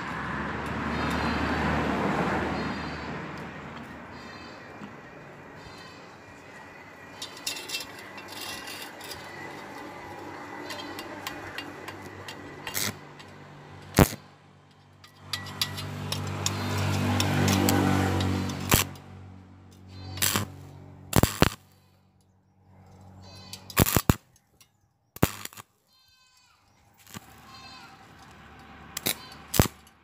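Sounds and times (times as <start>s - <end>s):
metal tubes clinking: 6.5s - 19.0s, 22.8s - 25.6s.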